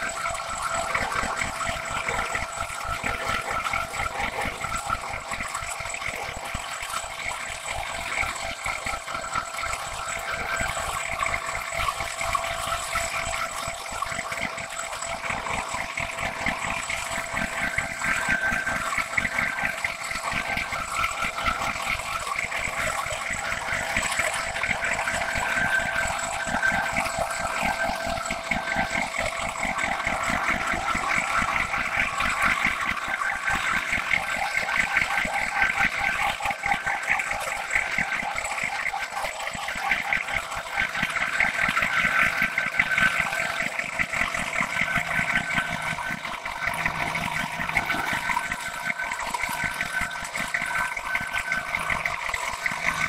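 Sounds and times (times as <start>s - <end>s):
steady high whine: 40.0s - 53.0s.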